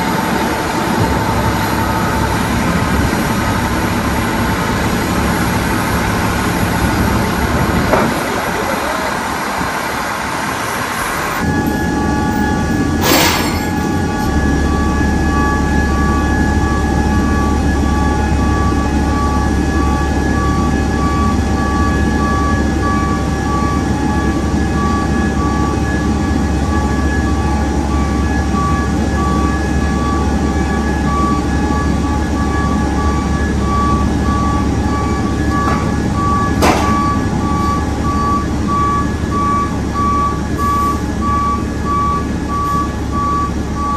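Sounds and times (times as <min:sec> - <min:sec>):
low engine hum: 0:00.0 - 0:43.9
backup alarm beeping: 0:11.4 - 0:43.9.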